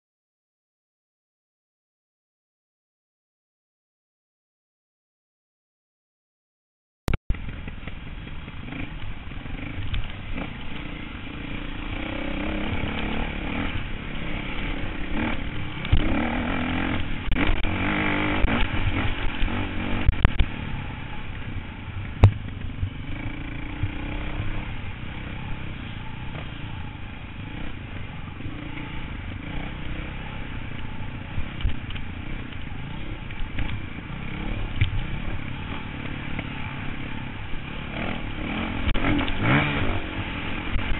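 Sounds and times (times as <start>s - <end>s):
dirt bike engine revving: 8.5s - 40.9s.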